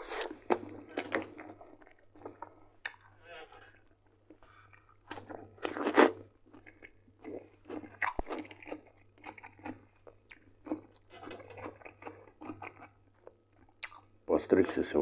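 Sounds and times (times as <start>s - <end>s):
wet chewing: 0.0s - 14.2s
crunching bite into cucumber: 5.1s - 6.2s.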